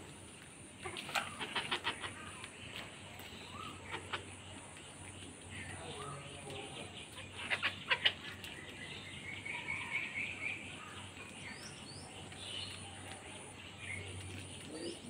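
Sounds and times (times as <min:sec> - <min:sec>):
birds chirping: 0:00.0 - 0:15.0
hens pecking taps: 0:00.1 - 0:08.9.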